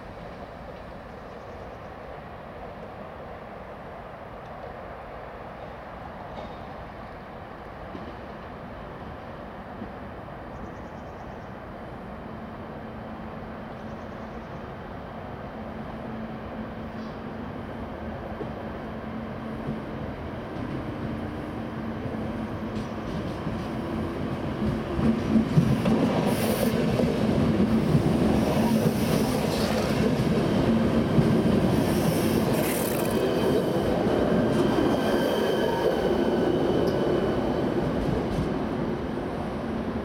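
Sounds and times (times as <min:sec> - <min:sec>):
train wheels squealing on rails: 0:16.8 - 0:17.5, 0:25.8 - 0:27.1, 0:27.9 - 0:30.2, 0:31.0 - 0:38.7.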